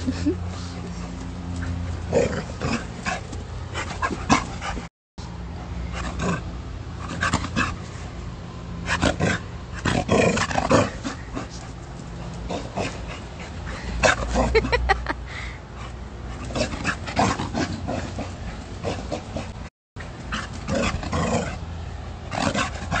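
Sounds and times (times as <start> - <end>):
dog growling and grunting: 2.0 - 4.8, 12.3 - 15.0, 16.4 - 19.7.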